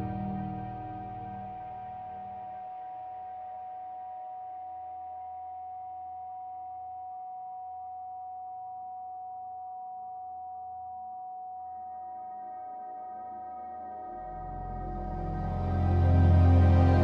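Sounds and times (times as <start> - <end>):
ambient meditation music: 0.0 - 6.9, 11.6 - 17.0
fainter high sine tone: 0.0 - 17.0
held sine tone: 0.0 - 17.0.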